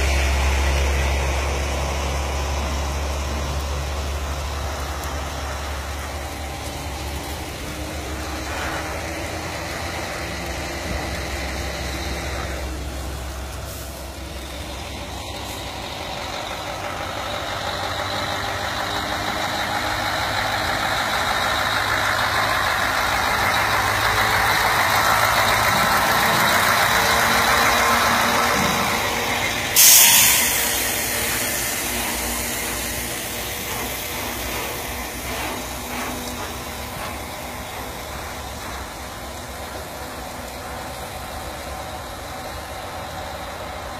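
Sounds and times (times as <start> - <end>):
diesel truck engine running: 0.0 - 43.9
air brake hiss: 28.6 - 35.8.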